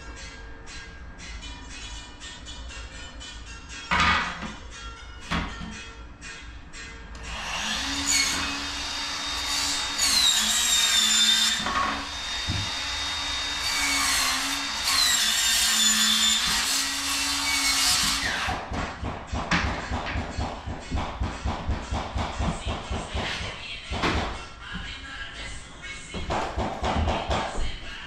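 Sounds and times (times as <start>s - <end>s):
power saw cutting wood: 7.2s - 18.7s.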